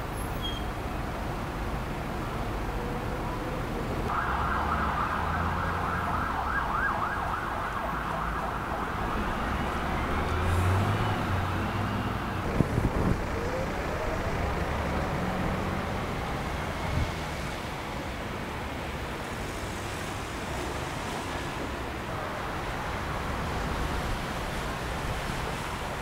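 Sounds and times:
passing traffic rumble: 0.0 - 26.0
siren wailing: 4.1 - 14.5.

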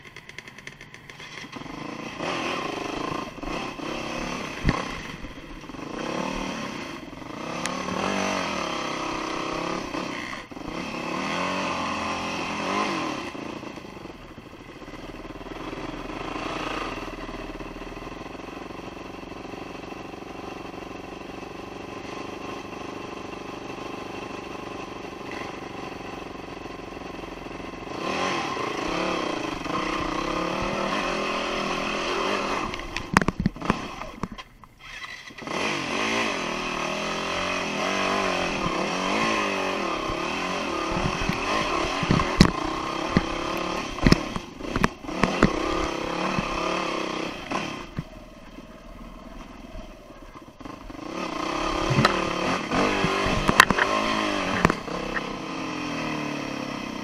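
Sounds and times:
dirt bike engine revving: 0.2 - 57.0.

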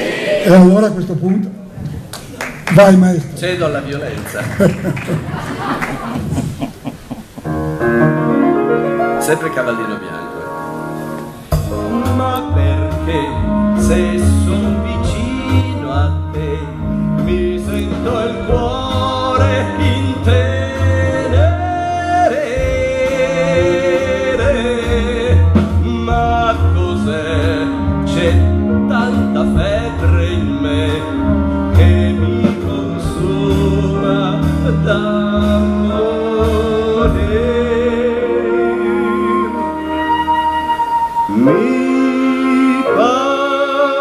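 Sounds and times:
instrumental accompaniment: 6.6 - 44.0
man singing with vibrato: 11.6 - 44.0.

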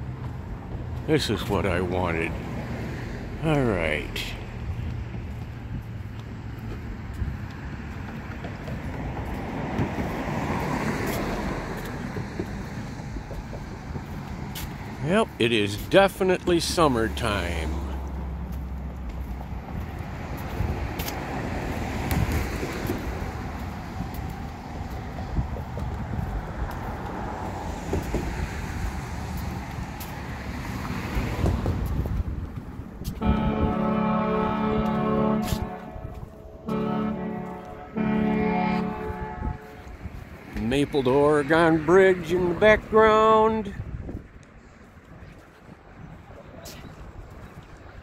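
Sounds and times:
vehicle passing: 0.0 - 48.0
wind rumble on microphone: 4.4 - 14.8, 19.0 - 40.7, 43.6 - 48.0.

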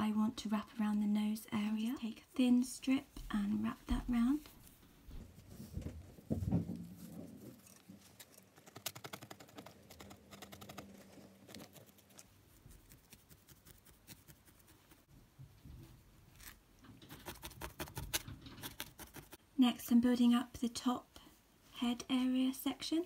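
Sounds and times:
felting needle poking wool: 7.0 - 15.1, 16.4 - 19.4.

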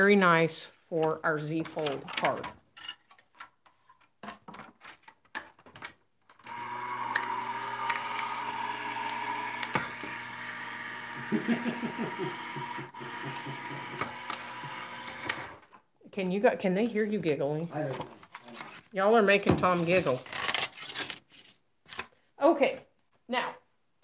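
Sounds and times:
machine motor hum: 6.5 - 15.6.

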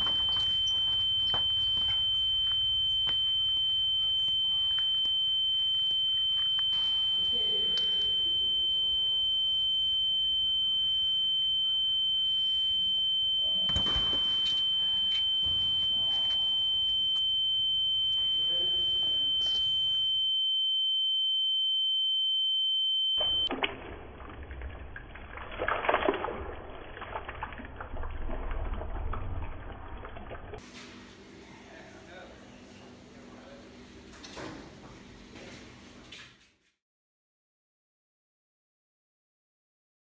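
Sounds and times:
high-pitched pure tone: 0.0 - 23.5.

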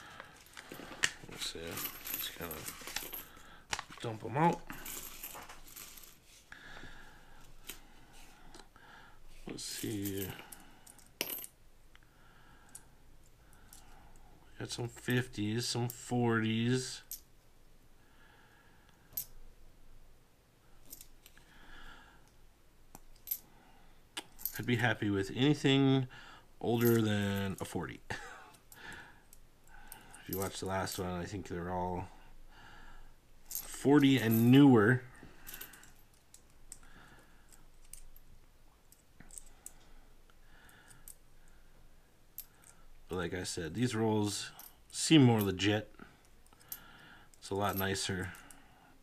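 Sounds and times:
soft rustling: 0.0 - 8.5
coins clinking: 0.3 - 6.2.

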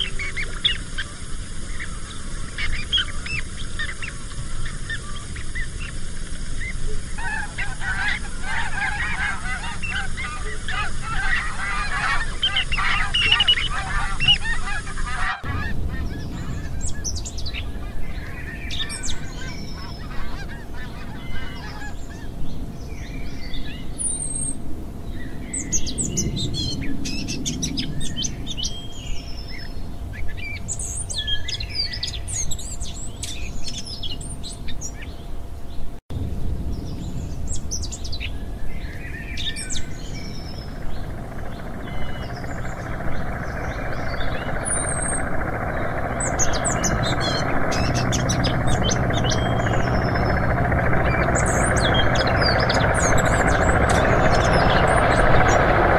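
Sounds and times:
steady rushing noise: 0.0 - 23.9, 36.1 - 55.9
faint steady hum: 0.0 - 55.9
low rumble: 1.2 - 30.1, 36.1 - 55.9
geese honking: 6.8 - 22.2, 40.7 - 55.9
small songbirds chirping: 15.5 - 55.9.

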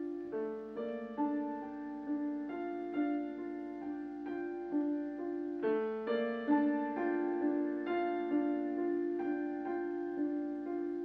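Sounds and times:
slow gentle piano melody: 0.0 - 11.0.

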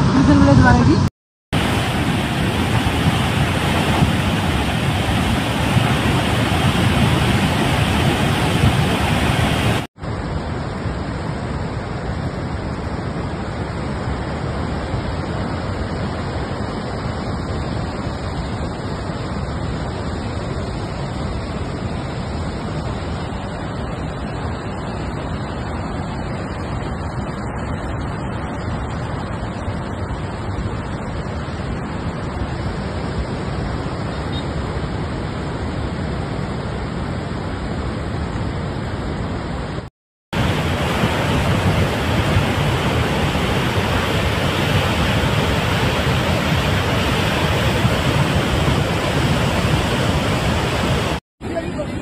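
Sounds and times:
flood water rushing: 1.6 - 11.5, 40.4 - 52.0
distant flood water rushing: 1.6 - 52.0.

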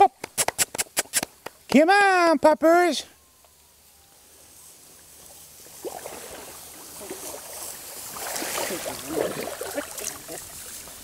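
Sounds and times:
water splashing and sloshing: 5.6 - 11.0.

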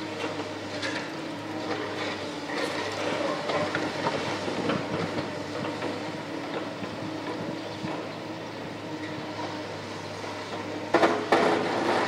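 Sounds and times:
excavator engine humming: 0.0 - 12.0
clanks and crunches of concrete: 0.2 - 6.7, 10.9 - 12.0.

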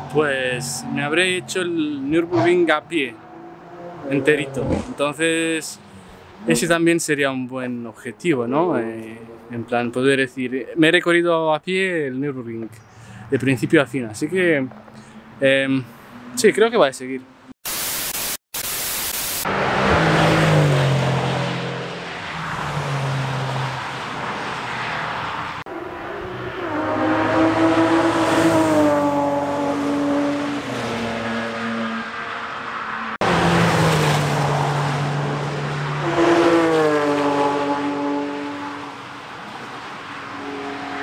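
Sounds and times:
racing cars passing: 0.0 - 6.8, 8.6 - 10.0, 14.4 - 17.6, 19.4 - 41.0
tv static burst: 17.6 - 19.4.

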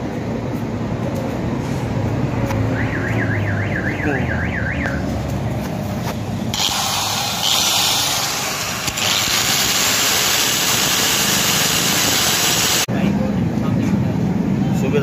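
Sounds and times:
angle grinder grinding steel: 6.5 - 12.9.

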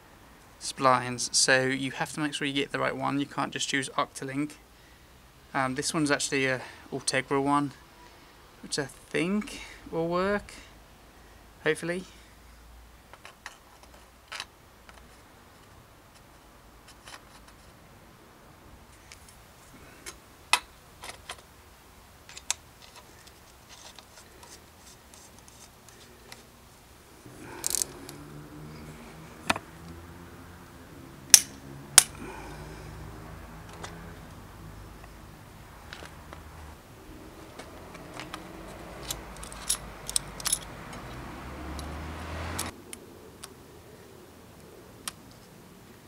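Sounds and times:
metallic clicks and clinks: 27.6 - 28.2, 37.6 - 41.2.

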